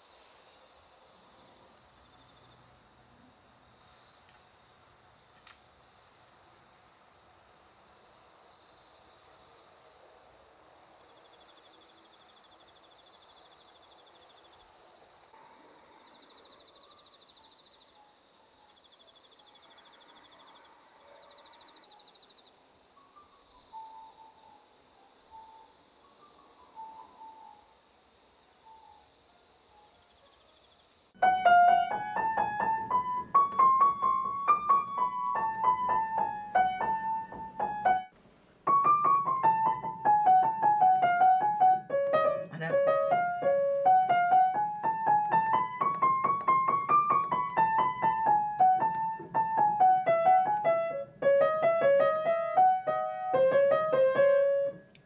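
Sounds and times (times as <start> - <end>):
insects chirping: 0.0 - 55.0
upright piano melody: 31.2 - 54.9.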